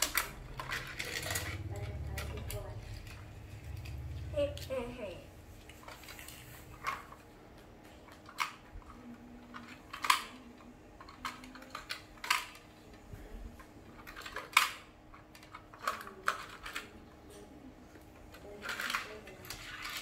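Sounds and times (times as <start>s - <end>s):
plastic toy parts clicking: 0.0s - 4.0s, 8.0s - 12.7s, 14.0s - 16.9s, 18.2s - 20.0s.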